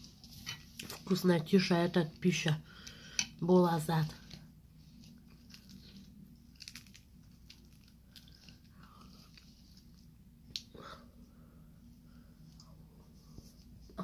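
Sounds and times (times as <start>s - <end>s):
person chewing food: 5.0s - 10.8s.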